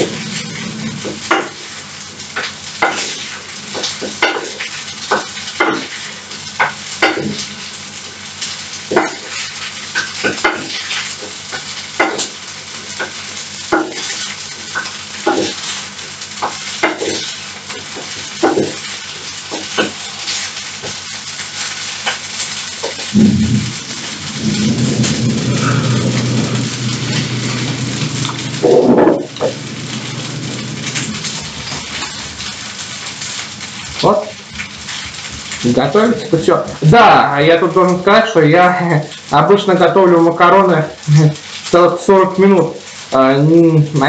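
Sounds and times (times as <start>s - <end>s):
frying pan sizzle: 0.0s - 44.0s
spatula knocking on pan: 1.0s - 1.6s, 3.8s - 6.0s, 6.6s - 7.4s, 8.9s - 9.3s, 11.5s - 12.4s, 13.0s - 14.1s, 16.4s - 17.2s, 18.0s - 18.8s.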